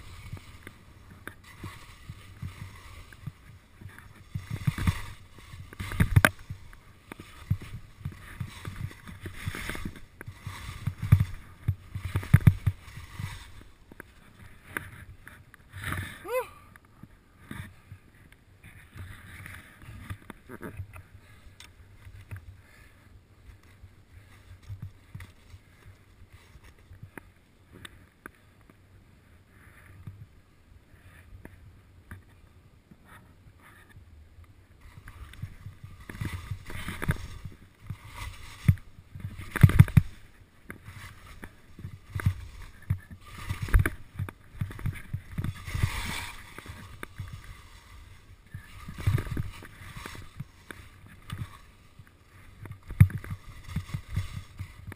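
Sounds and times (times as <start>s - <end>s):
skis scraping over packed snow: 0.0s - 54.9s.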